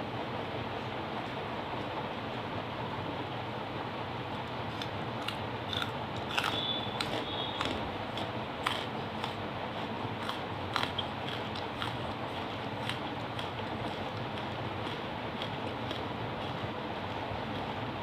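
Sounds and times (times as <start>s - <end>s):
crunchy chewing: 4.5s - 17.8s.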